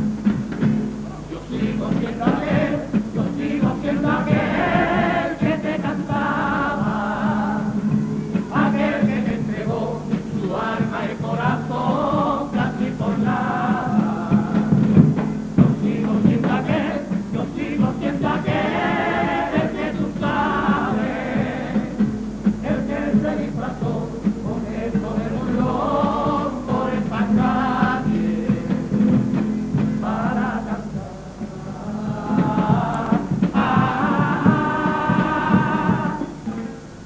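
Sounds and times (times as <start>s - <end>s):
acoustic guitar accompaniment: 0.0s - 37.0s
men singing in harmony: 1.2s - 36.6s.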